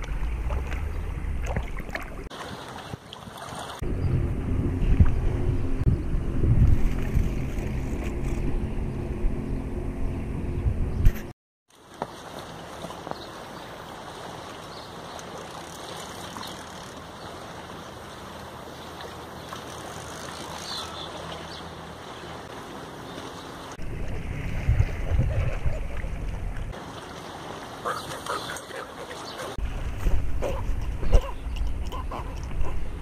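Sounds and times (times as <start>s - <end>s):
low buffeting gust: 3.8s - 11.3s
wind noise on microphone: 3.8s - 11.3s, 23.8s - 26.7s, 29.6s - 33.0s.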